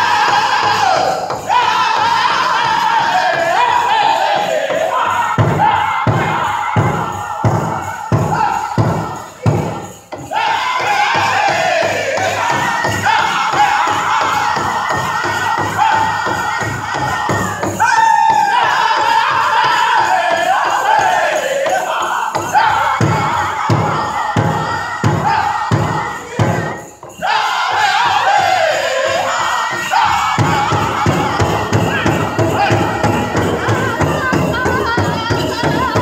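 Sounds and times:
high voices singing: 0:00.0 - 0:36.0
big drum strokes: 0:22.3 - 0:36.0.

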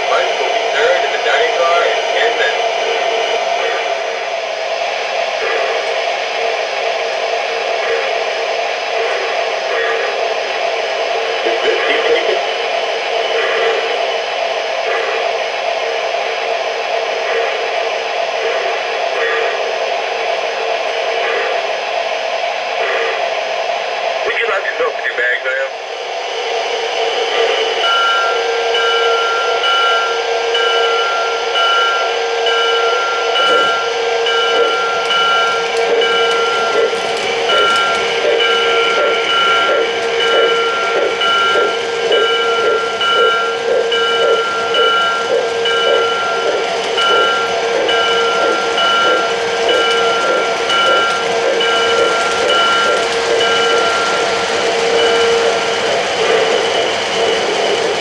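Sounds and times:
model train motor hum: 0:27.1 - 0:58.0.

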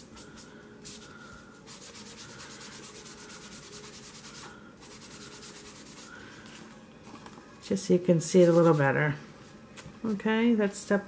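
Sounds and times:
sponge rubbing on cardstock: 0:01.7 - 0:06.1.

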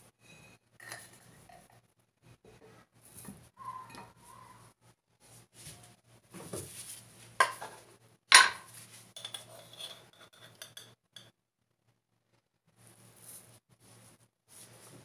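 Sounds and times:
metal spoon clinking on bowl: 0:09.2 - 0:11.3.

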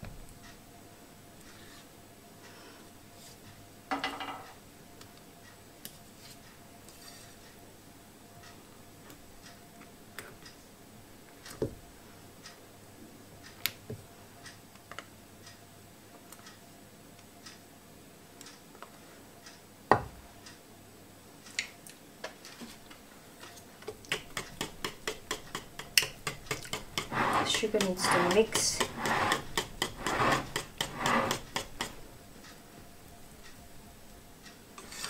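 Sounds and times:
even tapping of stirring batter: 0:23.8 - 0:32.0
utensils knocking against bowl: 0:23.9 - 0:32.0.

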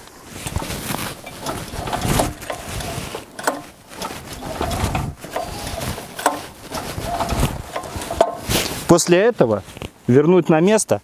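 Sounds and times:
recoil starter rope whirring: 0:00.4 - 0:09.0
engine turning over without firing: 0:00.5 - 0:08.9.

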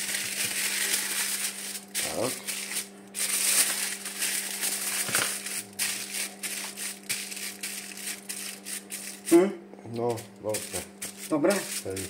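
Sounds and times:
aluminium foil crinkling: 0:00.0 - 0:09.4, 0:10.1 - 0:12.0.

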